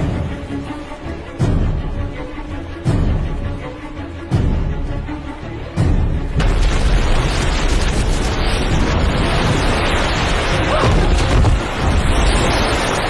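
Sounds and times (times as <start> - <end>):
explosion with deep rumble: 6.4 - 13.0.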